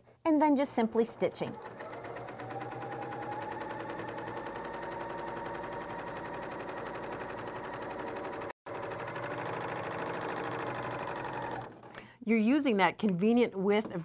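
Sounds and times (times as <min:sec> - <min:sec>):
sewing machine stitching clatter: 0:01.0 - 0:12.0.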